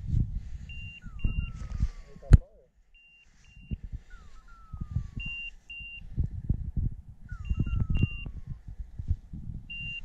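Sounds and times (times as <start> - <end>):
beeper collar beeps and falling tone: 0.7 - 2.4, 3.0 - 6.0, 7.3 - 8.6.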